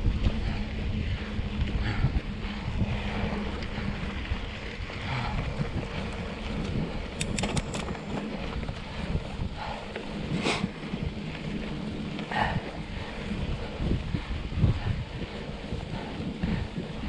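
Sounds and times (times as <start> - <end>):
wind buffeting microphone: 0.0 - 17.0
sharp clicks: 7.1 - 8.0.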